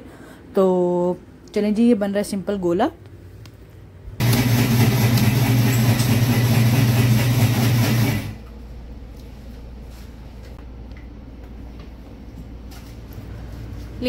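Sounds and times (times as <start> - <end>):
ice crushing machine grinding: 4.2 - 8.4.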